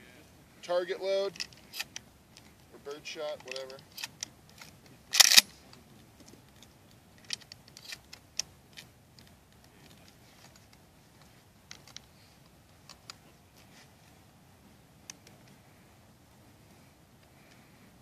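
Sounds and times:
shotgun clicks and knocks: 3.3s - 5.6s.

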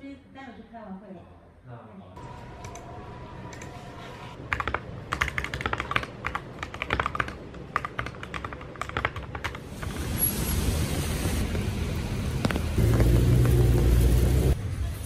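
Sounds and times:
mechanical keyboard typing: 4.5s - 9.6s.

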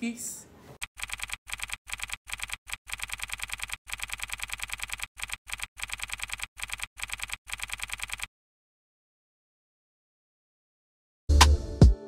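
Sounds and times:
keyboard typing clicks: 0.8s - 8.3s.

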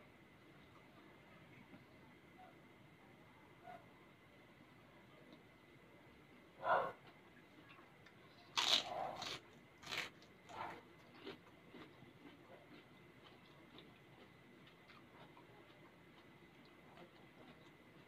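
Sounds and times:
person chewing food: 7.0s - 18.0s.

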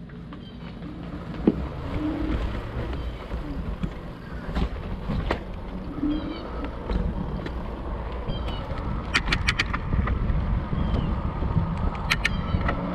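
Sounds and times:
e-bike rolling noise: 0.0s - 12.9s
wind rumble on microphone: 0.9s - 12.9s
sharp clicks: 7.4s - 10.2s, 11.8s - 12.8s.

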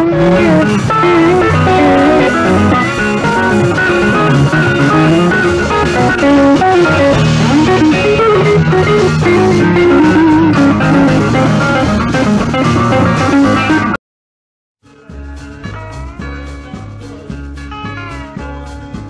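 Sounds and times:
bass guitar: 0.0s - 14.0s, 14.8s - 19.0s
electric guitar melody: 0.0s - 14.0s.

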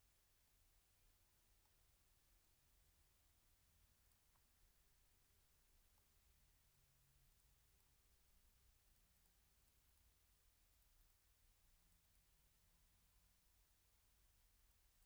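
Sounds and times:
computer mouse clicks: 4.0s - 4.6s, 5.2s - 8.1s, 8.8s - 12.4s, 14.6s - 15.0s.

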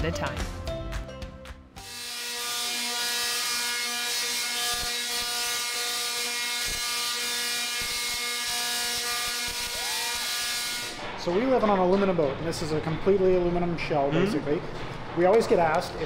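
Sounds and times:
sharp electric snaps: 1.8s - 11.0s
tesla coil electric buzz: 1.8s - 11.2s.

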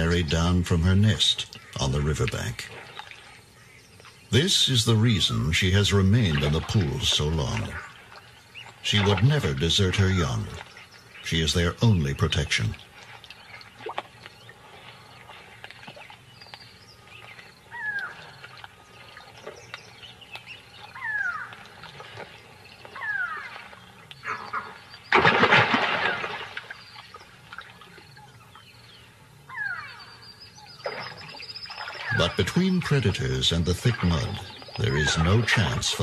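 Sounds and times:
loud splash-like noise burst: 25.1s - 26.6s.

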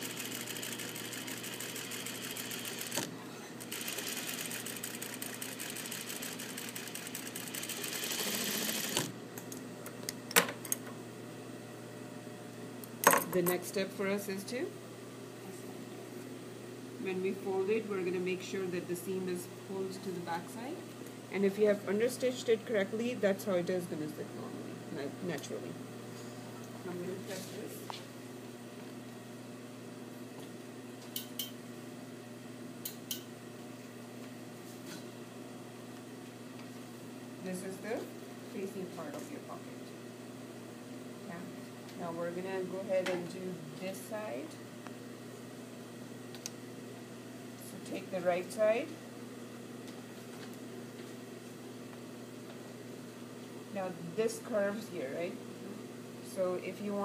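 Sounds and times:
sewing machine running: 0.0s - 9.2s
steady low hum: 0.0s - 57.0s.

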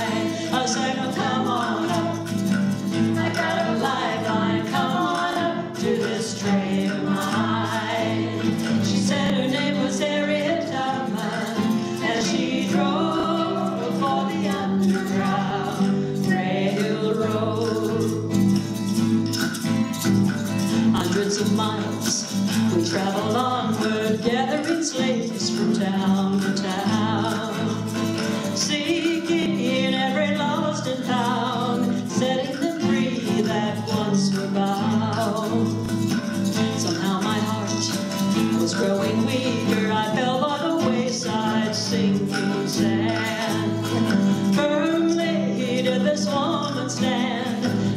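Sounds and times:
women singing: 0.0s - 18.5s, 20.9s - 47.9s
acoustic guitar strumming: 0.0s - 47.9s
hand percussion: 0.0s - 47.9s.

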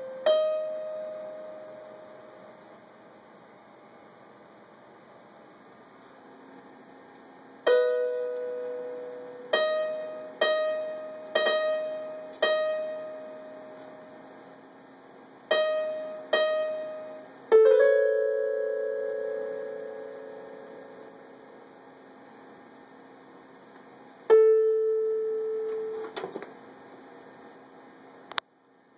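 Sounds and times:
electronic keyboard piano notes: 0.0s - 2.8s, 7.6s - 14.7s, 15.4s - 21.7s, 24.2s - 26.2s.

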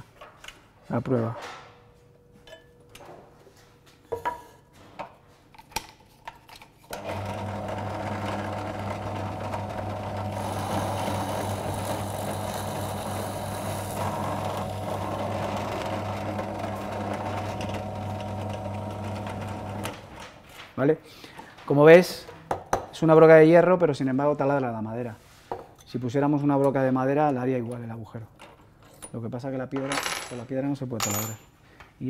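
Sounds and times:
drill bit boring into wood: 7.0s - 20.0s
drill press motor humming: 7.0s - 20.1s.

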